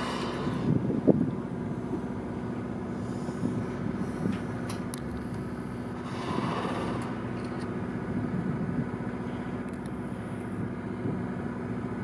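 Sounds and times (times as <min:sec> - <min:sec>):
wind on microphone: 0:00.0 - 0:02.1
rush of noise: 0:00.0 - 0:10.6
boat engine idling: 0:00.0 - 0:12.0.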